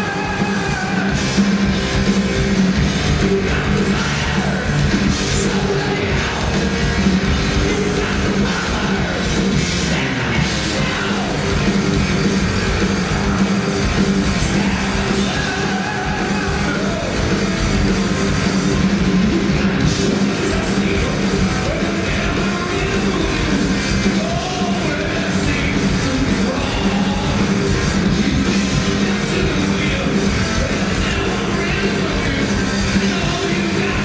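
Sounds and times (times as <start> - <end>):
bass guitar: 0.0 - 34.0
distorted electric guitars: 0.0 - 34.0
drums: 0.0 - 34.0
person singing: 3.0 - 12.0, 12.7 - 17.3, 19.1 - 34.0.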